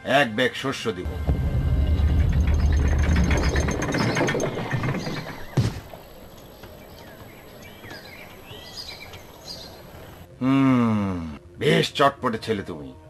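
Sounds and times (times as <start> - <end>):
low rumble: 1.1 - 5.5
clattering clicks and knocks: 2.0 - 6.0
sharp thump: 5.5 - 6.0.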